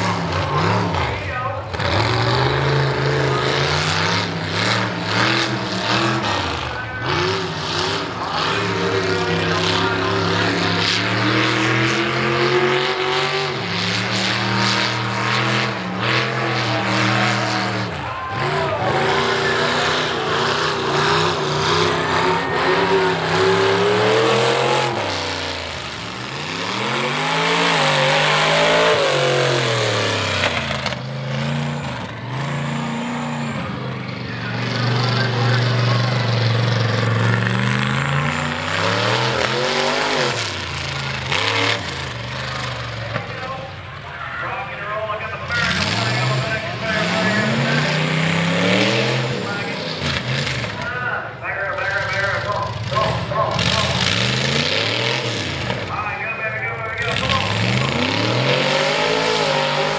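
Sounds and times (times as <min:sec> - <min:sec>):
truck engine revving: 0:00.0 - 0:59.9.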